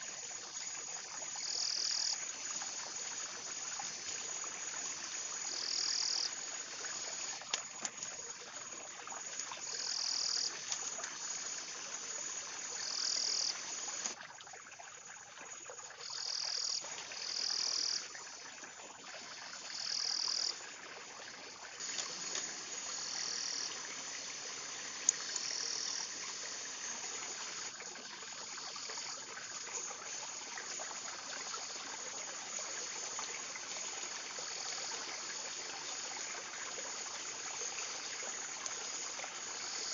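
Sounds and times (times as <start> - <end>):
insect chirping trills: 0.0 - 39.9
high-pitched insect buzz: 5.0 - 7.4, 9.6 - 11.7, 12.3 - 14.1, 19.5 - 20.7, 21.8 - 29.6.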